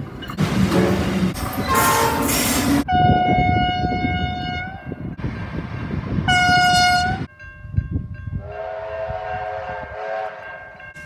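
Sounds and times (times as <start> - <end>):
moving train rumble: 0.0 - 11.0
locomotive horn blasts: 1.6 - 4.8, 6.3 - 7.3, 8.4 - 10.6.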